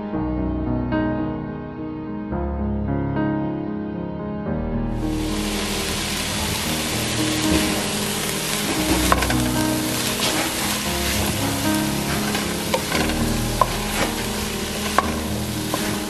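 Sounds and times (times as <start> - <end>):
vegetables sizzling in a pot: 5.0 - 16.0
spoon knocking against pan: 12.3 - 16.0.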